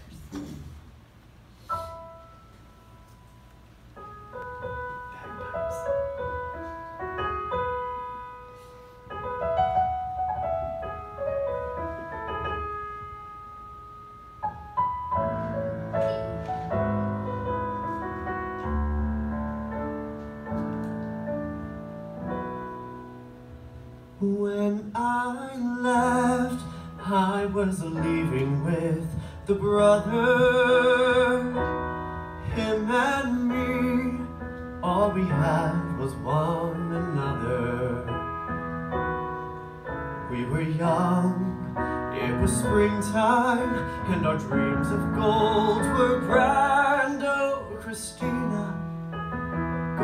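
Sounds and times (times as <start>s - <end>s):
piano playing: 0.8s - 50.0s
man singing: 24.2s - 31.8s, 32.4s - 38.3s, 40.2s - 49.0s.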